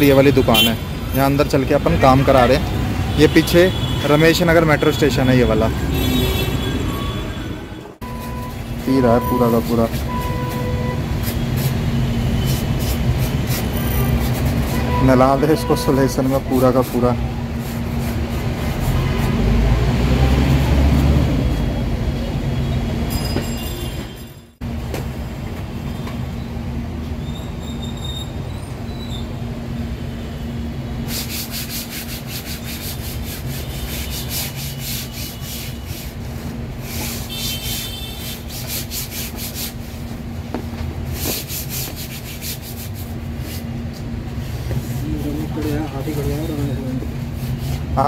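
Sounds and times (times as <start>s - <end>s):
hands brushing fabric patch: 31.1s - 46.6s.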